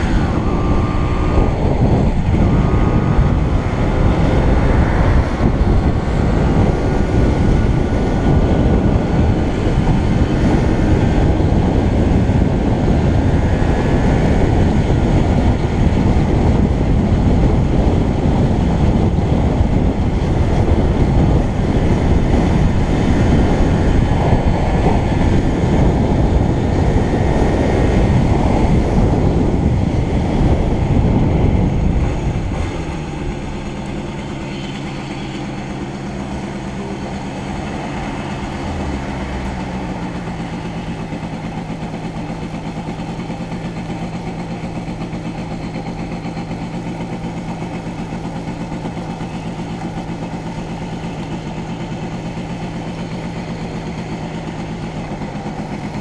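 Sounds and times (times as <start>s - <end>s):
faint wavering whine: 0.0s - 6.1s
road noise: 0.0s - 56.0s
wind rumble on microphone: 0.0s - 56.0s.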